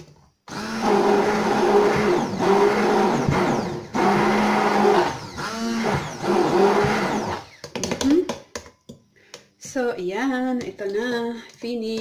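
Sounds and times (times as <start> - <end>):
hand blender running: 0.5 - 7.7.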